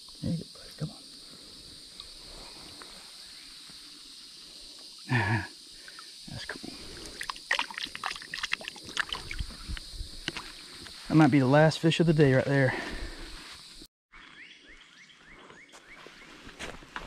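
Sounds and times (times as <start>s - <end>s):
hands splashing in shallow water: 7.1s - 10.5s.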